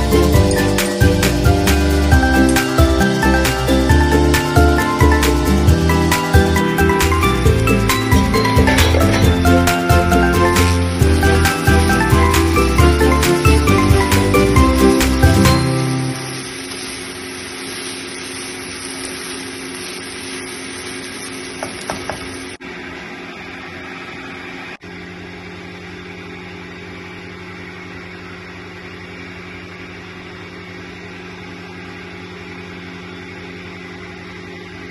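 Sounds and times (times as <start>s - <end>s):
chicken sizzling in a pan: 0.0s - 22.6s
low mechanical hum: 0.0s - 34.9s.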